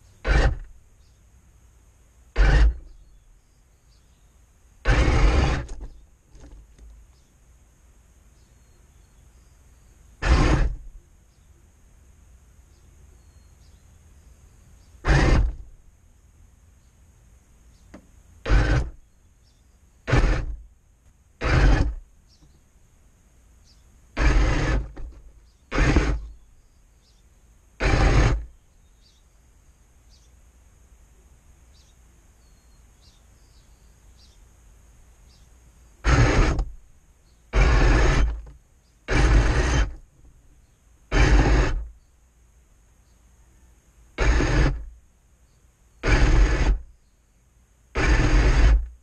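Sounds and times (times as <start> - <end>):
faint low hum: 0.0 - 49.0
electric motors and gearbox whirring: 0.1 - 0.8, 2.4 - 3.2, 4.8 - 7.0, 10.2 - 11.0, 15.0 - 15.8, 17.9 - 19.1, 20.0 - 20.7, 21.4 - 22.6, 24.1 - 26.5, 27.8 - 28.6, 36.0 - 36.8, 37.5 - 40.3, 41.1 - 42.0, 44.2 - 45.0, 46.0 - 46.9, 48.0 - 49.0.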